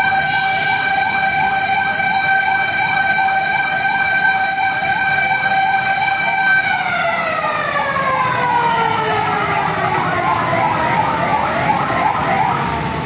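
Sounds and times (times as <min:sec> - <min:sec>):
long siren tone winding down: 0:00.0 - 0:13.0
electronic siren yelping: 0:06.8 - 0:12.8.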